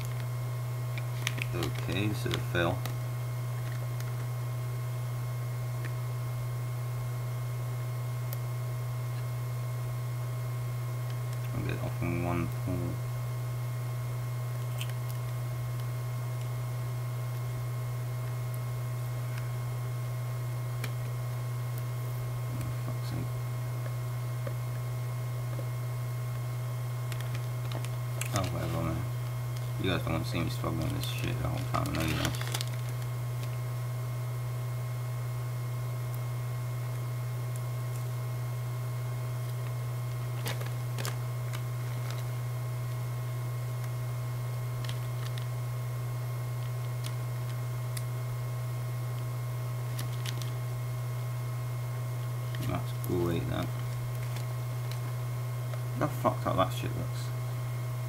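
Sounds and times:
low electrical hum: 0:00.0 - 0:58.0
fingernails crinkling plastic film: 0:00.9 - 0:04.3, 0:27.0 - 0:33.6, 0:39.4 - 0:43.0, 0:44.8 - 0:45.5, 0:46.6 - 0:48.1, 0:49.8 - 0:50.6, 0:52.5 - 0:55.2
plastic box clicks and crinkles: 0:01.0 - 0:02.9, 0:30.8 - 0:33.6, 0:40.4 - 0:42.3, 0:44.8 - 0:45.5, 0:49.9 - 0:50.5.

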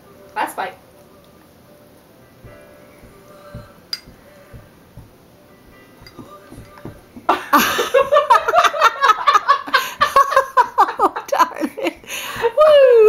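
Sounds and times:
hearty laughter: 0:07.3 - 0:12.8.

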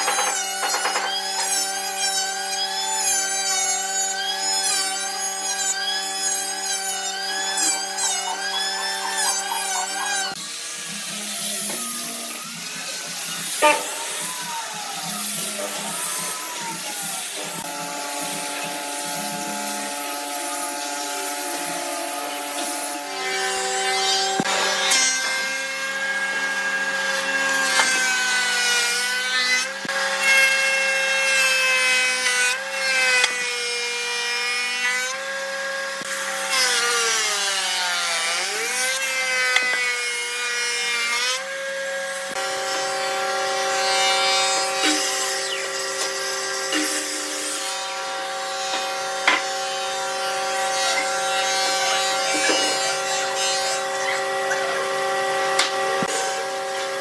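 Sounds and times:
thickness planer whine: 0:00.0 - 0:57.0.

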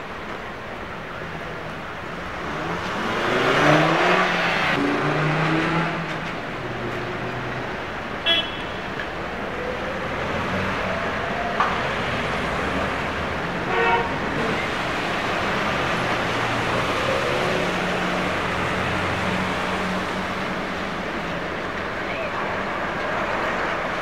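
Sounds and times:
street traffic: 0:00.0 - 0:24.0
short vehicle horn toot: 0:08.3 - 0:08.8.

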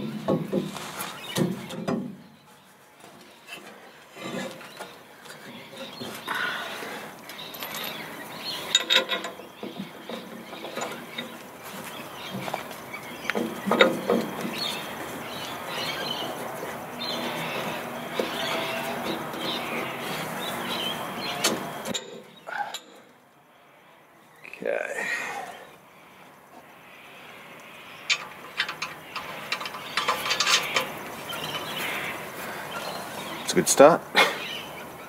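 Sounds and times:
metal clinks and knocks: 0:07.3 - 0:11.4, 0:28.1 - 0:31.8
metal scraping: 0:28.1 - 0:33.4.

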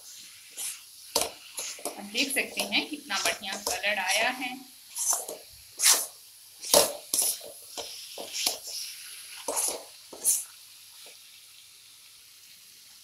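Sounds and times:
metal spatula scraping a pan: 0:00.4 - 0:10.5.

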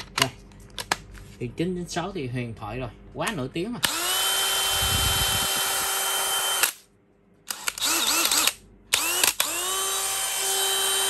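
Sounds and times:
cordless drill motor whine: 0:03.8 - 0:06.8, 0:07.5 - 0:11.0.

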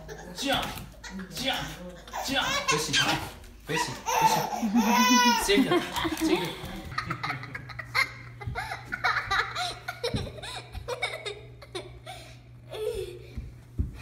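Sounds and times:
girl laughing and giggling: 0:04.3 - 0:13.4.

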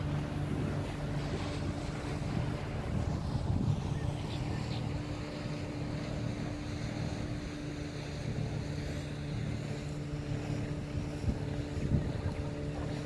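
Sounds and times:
boat engine humming: 0:00.0 - 0:13.0
water noise: 0:00.0 - 0:13.0
wind: 0:00.0 - 0:13.0.

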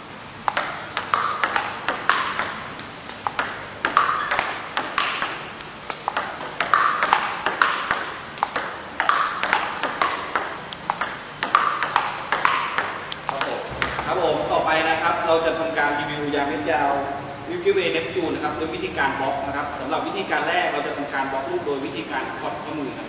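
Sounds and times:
table tennis ball clicking: 0:00.4 - 0:14.2.

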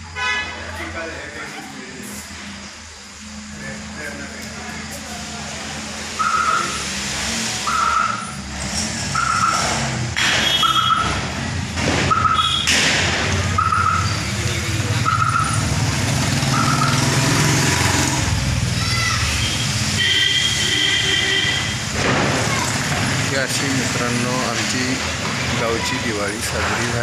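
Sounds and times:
sharp bangs: 0:09.2 - 0:14.1, 0:21.7 - 0:23.3.

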